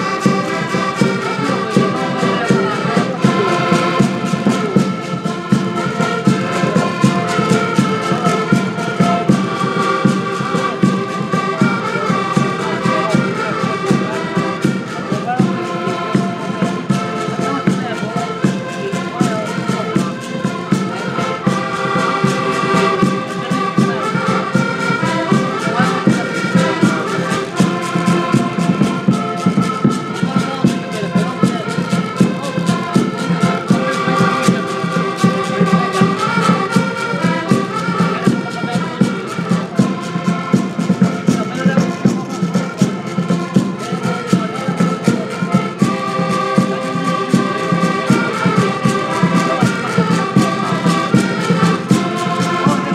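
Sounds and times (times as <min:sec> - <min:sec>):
accordions playing folk tune: 0:00.0 - 0:52.9.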